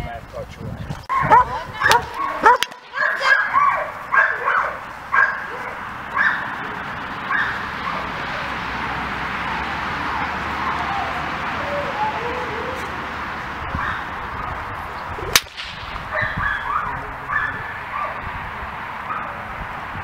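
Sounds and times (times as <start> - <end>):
dog barking: 1.1 - 6.6, 7.3 - 8.2, 13.8 - 14.1, 16.1 - 18.2
steady background hiss: 2.1 - 20.0.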